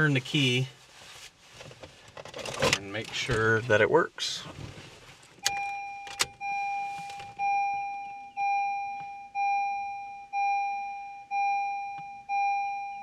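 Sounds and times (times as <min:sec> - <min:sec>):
dashboard warning chime: 0:05.4 - 0:13.0.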